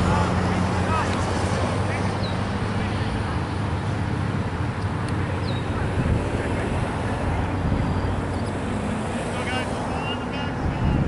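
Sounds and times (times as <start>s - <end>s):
wind buffeting the microphone: 5.4s - 8.7s, 10.5s - 11.0s.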